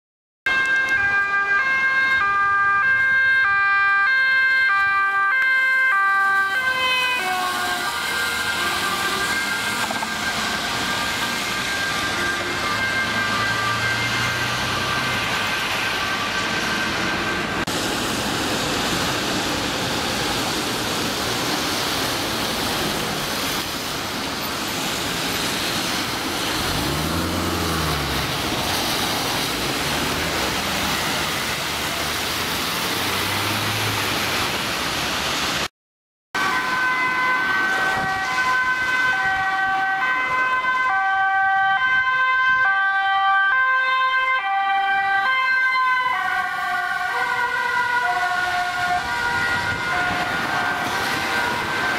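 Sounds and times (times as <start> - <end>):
two-tone ambulance siren: 0.5 - 17.8, 25.4 - 34.3, 36.4 - 51.9
traffic on a wet road: 0.5 - 35.7, 36.4 - 51.9
heavy vehicle engine passing: 7.4 - 35.7.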